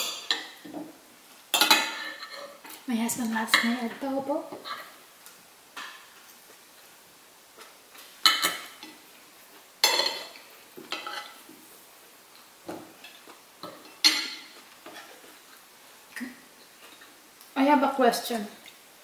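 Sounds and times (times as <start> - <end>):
cutlery clinking on plates: 0.0 - 0.9, 1.5 - 2.8, 8.2 - 9.0, 9.8 - 11.4, 13.0 - 15.2.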